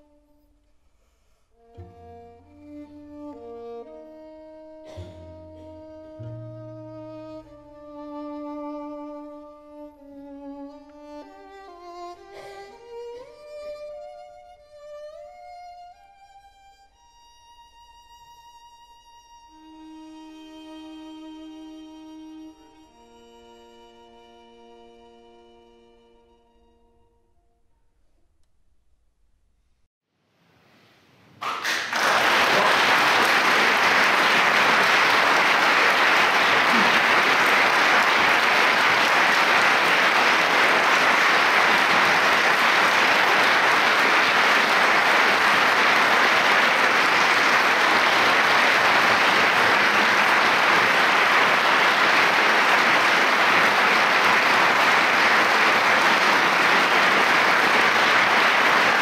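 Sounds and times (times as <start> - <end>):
audience applause: 31.4 - 59.0.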